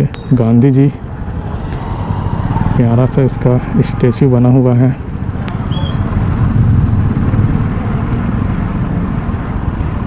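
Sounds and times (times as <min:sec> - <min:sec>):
motorcycle engine rumbling: 0:00.0 - 0:10.0.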